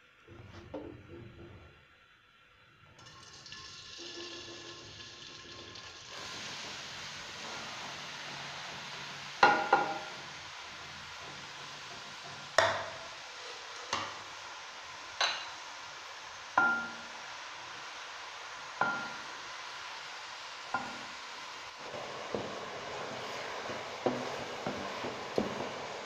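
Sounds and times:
onions sizzling in oil: 3.0 - 26.0
utensils knocking on pan: 9.4 - 10.4, 11.2 - 13.2, 15.2 - 15.6, 16.6 - 17.0, 18.8 - 19.3, 20.7 - 21.1, 23.6 - 26.0.

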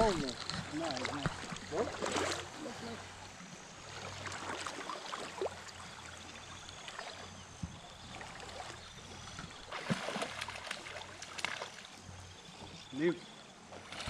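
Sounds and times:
stream water running: 0.0 - 14.0.

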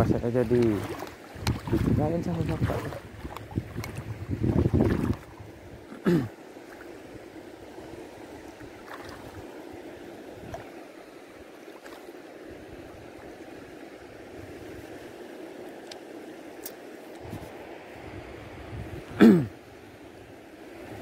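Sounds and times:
wind buffeting microphone: 0.0 - 5.9, 17.2 - 19.2
seawater sloshing from wading: 0.0 - 15.2.

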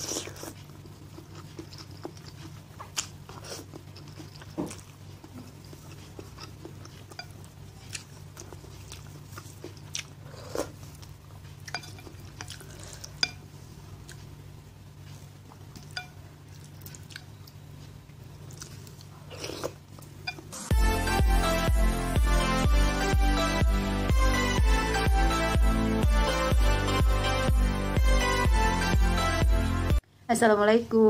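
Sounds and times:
noodles slurped and chewed: 0.0 - 11.2
low steady hum: 0.0 - 31.0.

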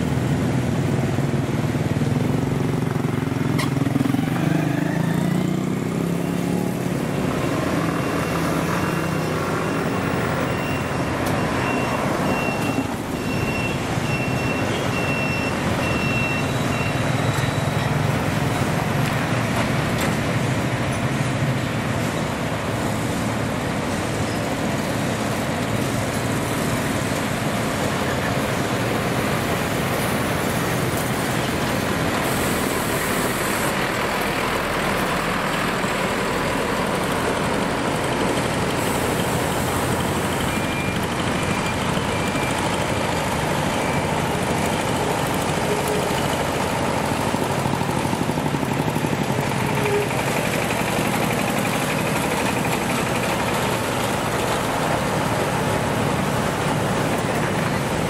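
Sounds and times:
motorbikes driving past: 0.0 - 14.0
trucks driving past: 0.0 - 58.0.

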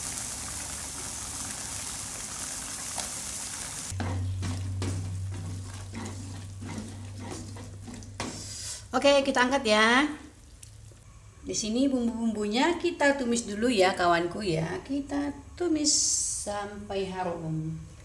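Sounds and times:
oil sizzling in a frying pan: 0.0 - 4.0
steady low hum: 3.9 - 9.4
spatula scraping a pan: 4.9 - 8.6.

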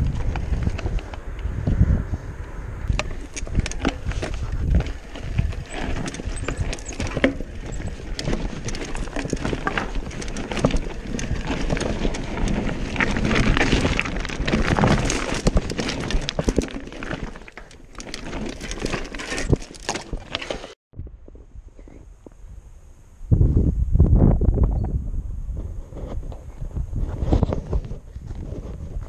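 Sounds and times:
bike rattling: 0.0 - 20.8
tyres crunching over loose stones: 2.9 - 20.8.

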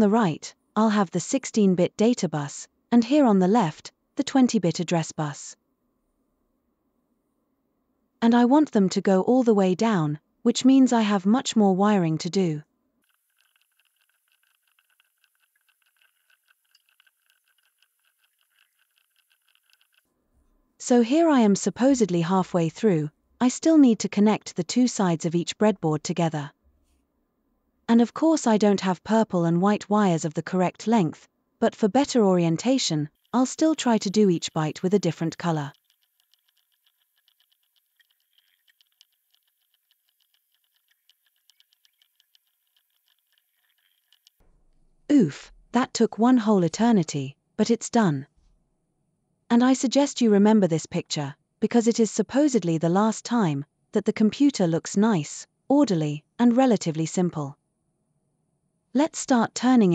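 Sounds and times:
rapid faint clicking: 13.0 - 20.1, 33.2 - 44.4.

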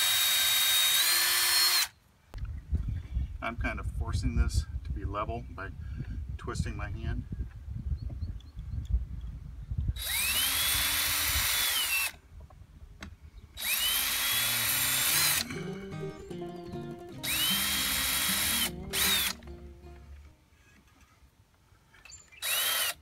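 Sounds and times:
cordless drill whining: 0.0 - 1.9, 10.0 - 12.2, 13.6 - 15.5, 17.2 - 19.4, 22.4 - 23.0.

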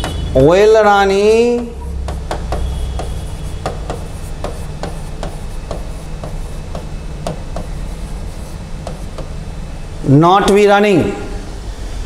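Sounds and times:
pen tapping on screen: 1.5 - 8.0, 8.8 - 9.4.

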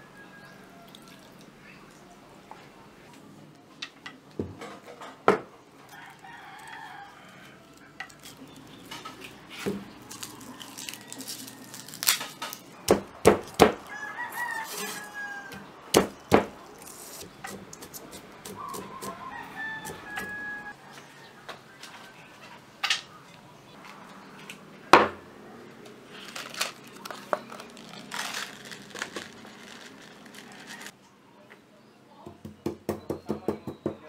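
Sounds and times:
rooster crowing: 0.0 - 1.4, 5.8 - 8.1, 13.7 - 15.7, 18.5 - 22.1
chickens calling: 13.8 - 24.6.

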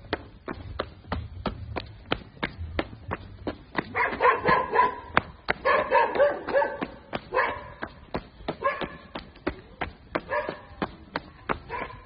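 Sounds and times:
footsteps: 0.0 - 12.0
dog barking: 3.9 - 7.8, 8.6 - 9.1, 10.2 - 10.7, 11.7 - 12.0.

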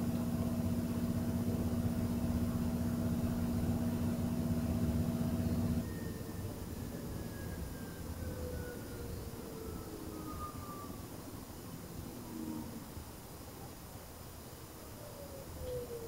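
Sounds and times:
low machine hum: 0.0 - 7.0.

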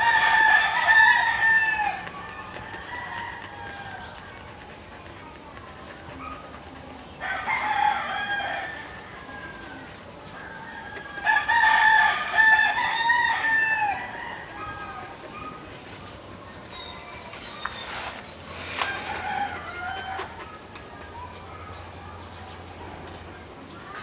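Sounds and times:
rooster crowing: 0.0 - 4.2, 7.2 - 15.2, 18.7 - 20.5.

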